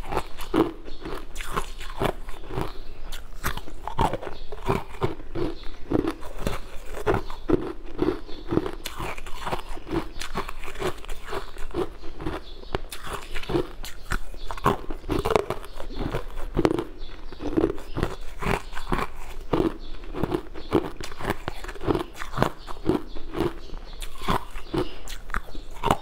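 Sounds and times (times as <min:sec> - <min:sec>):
person crunching ice cubes: 0:00.0 - 0:26.0.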